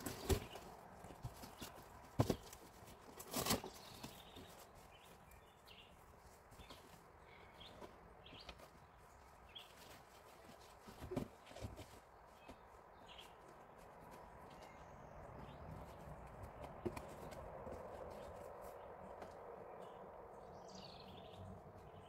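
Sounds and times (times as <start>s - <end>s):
cardboard thumps and scrapes: 0.0s - 4.5s, 10.4s - 12.0s
cardboard rustling: 0.0s - 5.3s, 6.2s - 14.5s.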